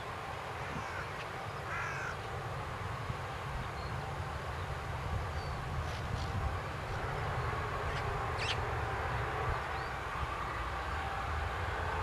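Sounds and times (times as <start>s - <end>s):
distant jet engines rumbling: 0.0s - 12.0s
bird calling: 0.6s - 2.2s, 7.9s - 8.6s.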